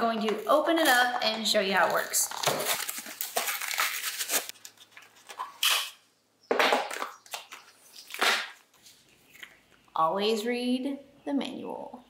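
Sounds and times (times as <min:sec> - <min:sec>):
plastic packaging crinkling: 0:00.1 - 0:05.9.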